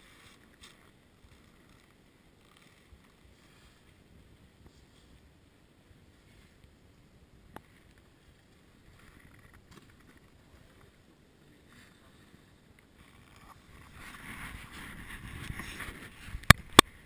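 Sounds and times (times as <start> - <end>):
snowboard scraping over snow: 13.5 - 16.4.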